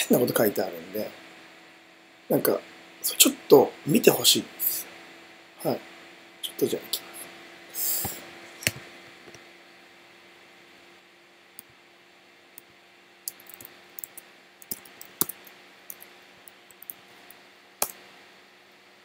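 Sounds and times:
faint steady hum: 0.0s - 19.0s
computer keyboard typing: 13.3s - 16.1s.

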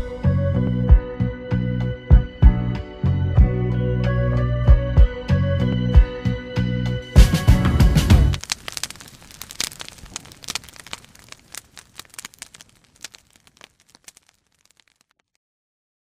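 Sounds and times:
crackling clicks and pops: 8.0s - 15.4s.

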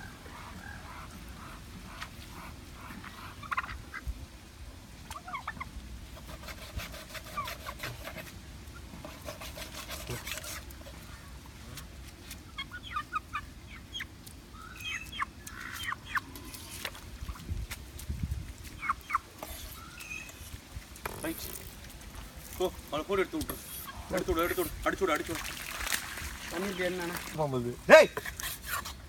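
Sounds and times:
poultry calling: 0.0s - 4.0s.

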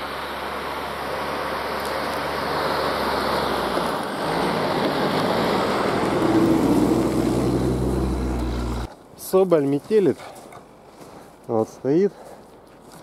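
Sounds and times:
tyres churning snow: 0.0s - 8.9s.

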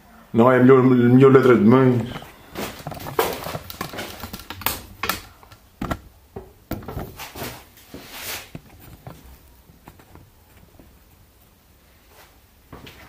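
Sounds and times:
camera handling clicks and knocks: 2.8s - 6.0s.

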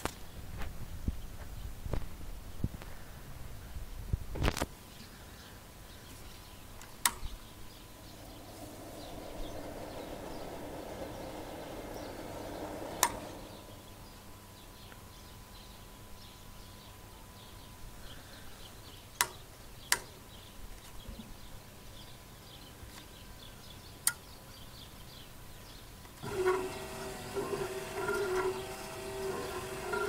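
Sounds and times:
electric motor humming: 7.7s - 14.1s, 26.2s - 30.0s
sharp clicks: 11.8s - 13.5s.

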